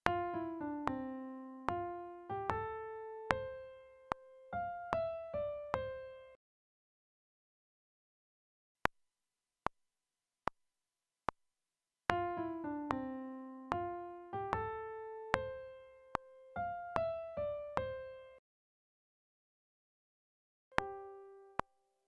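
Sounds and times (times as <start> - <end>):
piano melody: 0.0 - 6.4, 12.1 - 18.4, 20.8 - 21.9.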